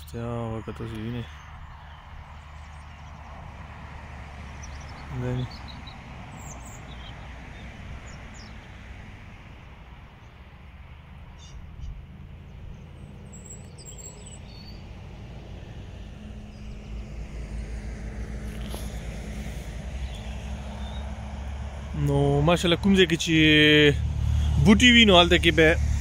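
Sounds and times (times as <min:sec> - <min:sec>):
wind buffeting microphone: 0:00.6 - 0:10.4.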